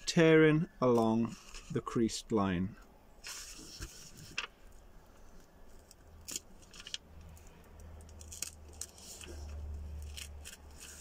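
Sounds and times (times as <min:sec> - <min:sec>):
paper tearing: 0:08.2 - 0:11.0.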